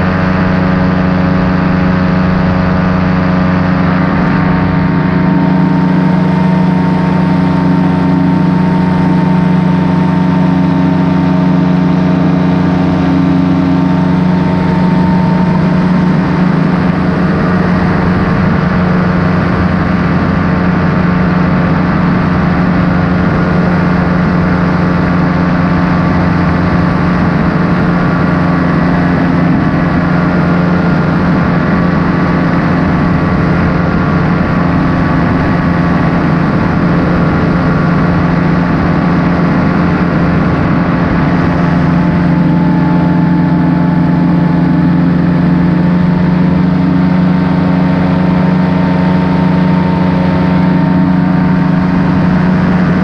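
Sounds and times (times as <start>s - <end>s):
paramotor engine and propeller: 0.0s - 53.0s.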